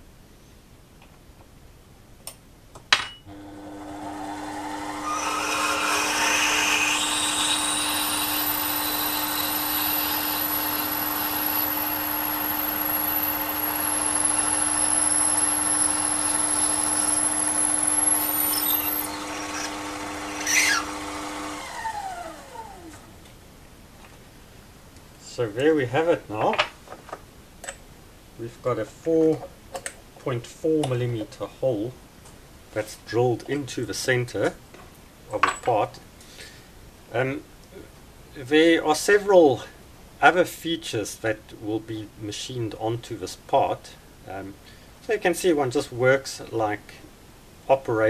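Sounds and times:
drill bit cutting brass: 3.3 - 21.6
lathe motor humming: 3.3 - 22.9.

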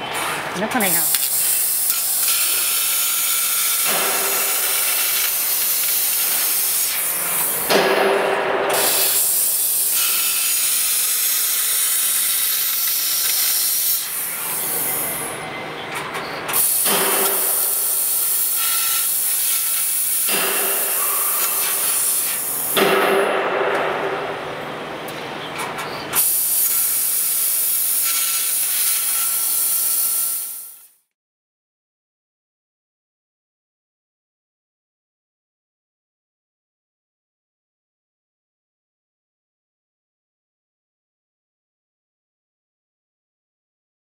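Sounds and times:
laser cutter gas hiss: 0.8 - 7.7, 8.7 - 15.2, 16.6 - 22.8, 26.2 - 31.0.

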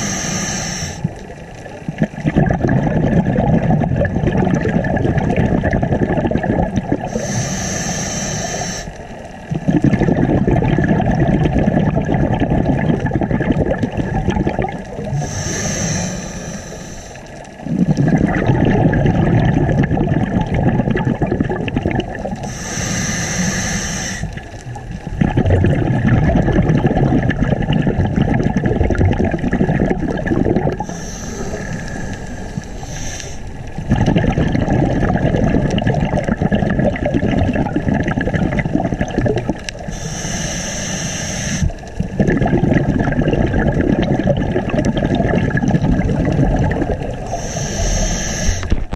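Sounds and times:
regulator inhale hiss: 0.0 - 1.1, 7.1 - 9.0, 15.1 - 17.5, 22.4 - 24.6, 30.8 - 33.8, 39.8 - 41.9, 47.2 - 48.9
exhaust bubbling underwater: 0.0 - 48.9.

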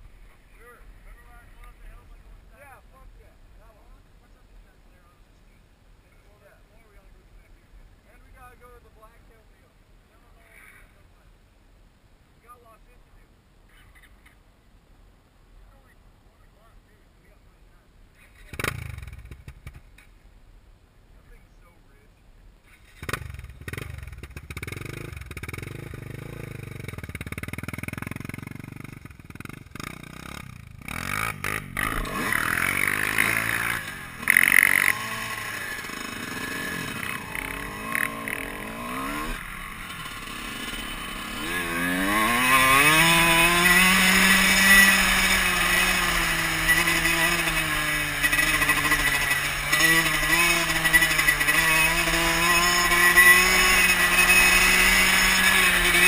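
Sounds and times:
dirt bike engine: 18.1 - 20.3, 22.6 - 56.0.

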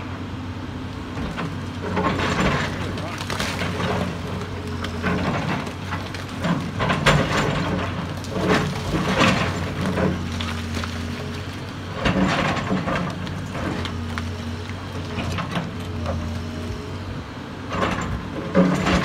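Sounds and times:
excavator diesel engine running: 0.0 - 19.0
rock cracking and clattering down: 2.2 - 14.2.

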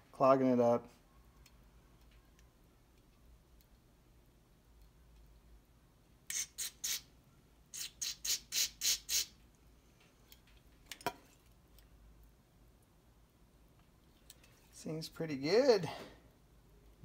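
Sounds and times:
aerosol cleaner hissing squirts: 6.3 - 7.1, 7.8 - 9.4.

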